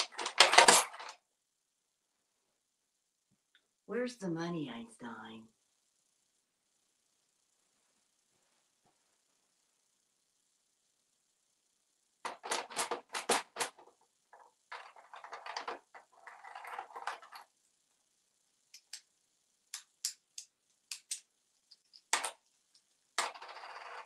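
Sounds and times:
beak clicking toy coins: 12.3s - 13.8s, 14.7s - 17.4s, 20.9s - 24.0s.

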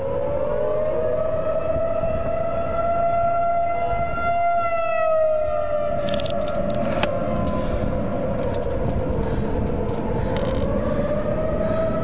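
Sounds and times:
tornado warning siren wailing: 0.0s - 12.0s
low rumbling noise: 5.8s - 12.0s
sharp crackles: 5.8s - 12.0s.

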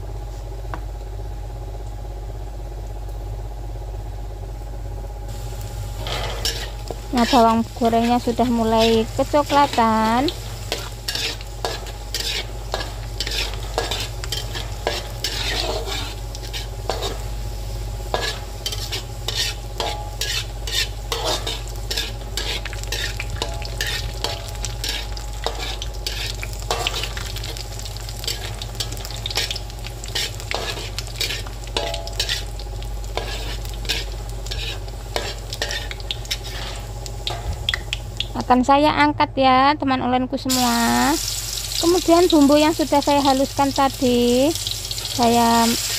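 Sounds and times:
shallots sizzling in hot oil: 5.3s - 39.0s, 40.4s - 45.9s
metal spatula scraping a wok: 5.9s - 37.5s.

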